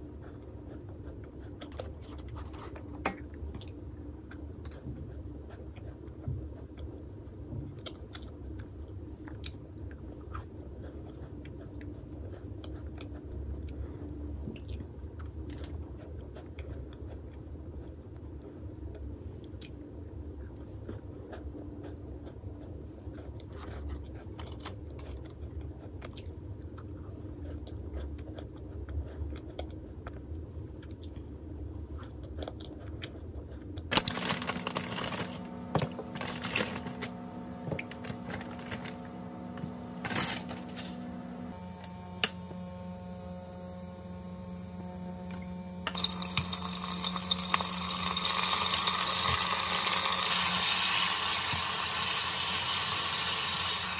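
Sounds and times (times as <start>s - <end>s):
person chewing cookies: 0.0s - 41.0s
low steady hum: 0.0s - 53.9s
kitchen noise: 33.9s - 41.0s, 45.9s - 53.9s.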